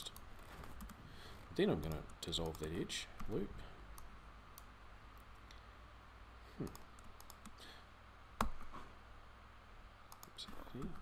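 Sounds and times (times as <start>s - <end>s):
faint low hum: 0.0s - 11.0s
computer mouse clicks: 6.7s - 7.6s, 10.1s - 11.0s.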